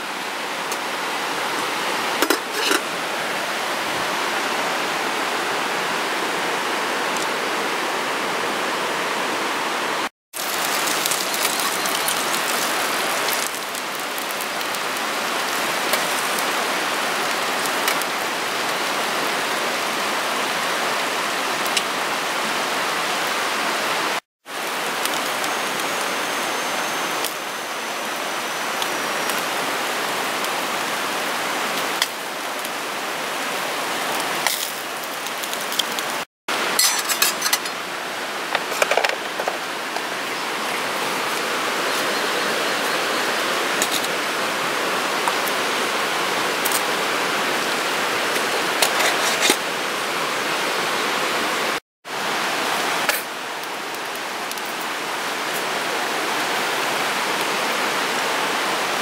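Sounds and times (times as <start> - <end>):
metal tableware clinking: 2.2 - 2.9, 36.8 - 37.8.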